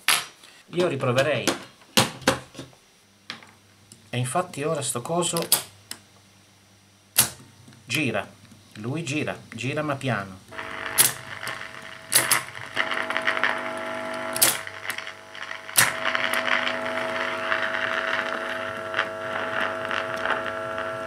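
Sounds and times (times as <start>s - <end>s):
tape recorder motor hum: 10.5s - 21.0s.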